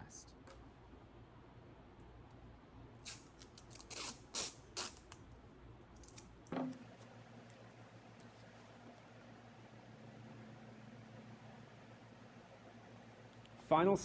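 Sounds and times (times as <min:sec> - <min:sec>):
masking tape ripping off roll: 0:03.0 - 0:05.2
knock: 0:06.6 - 0:06.8.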